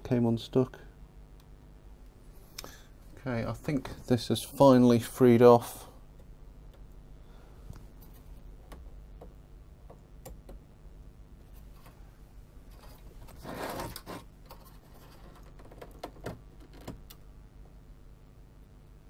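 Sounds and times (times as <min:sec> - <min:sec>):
scraping rustle: 0:12.7 - 0:15.5
small clicks and scrapes: 0:12.7 - 0:17.2.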